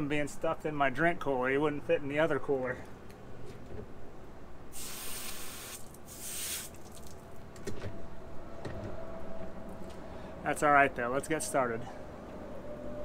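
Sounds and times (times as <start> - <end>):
spraying water hiss: 4.7 - 7.1.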